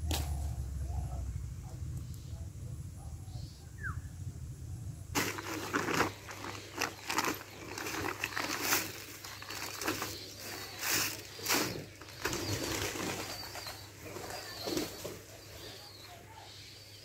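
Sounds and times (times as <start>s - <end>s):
faint bird calls: 0.1s - 4.2s, 4.9s - 17.0s
plastic sack rustling: 5.1s - 15.2s.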